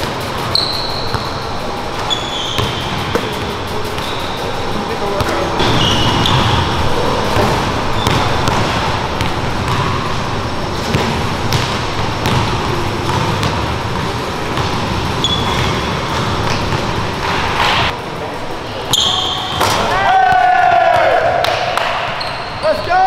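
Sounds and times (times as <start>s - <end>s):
basketball bouncing and hitting rim: 0.0s - 4.1s, 5.2s - 17.9s, 19.0s - 19.9s
sneakers squeaking on wooden floor: 0.4s - 4.6s, 5.2s - 17.9s, 18.9s - 19.8s, 22.1s - 22.9s.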